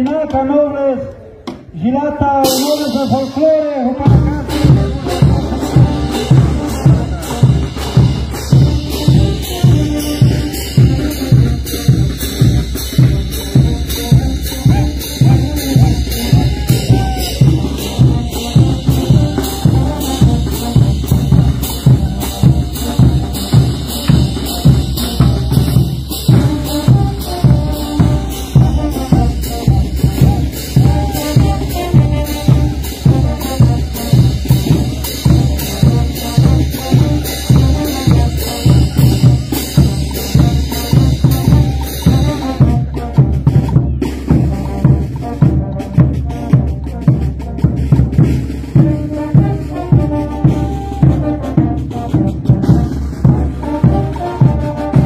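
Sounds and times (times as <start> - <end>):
brass band playing dance music: 1.9 - 55.0
bass and snare drums beating: 2.3 - 55.0.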